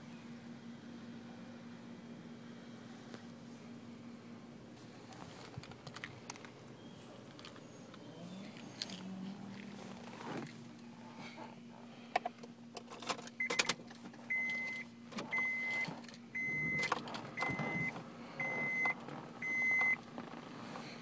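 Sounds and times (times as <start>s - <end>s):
key and ignition clicks: 12.8s - 19.0s
dashboard warning chime beeping: 13.4s - 20.0s.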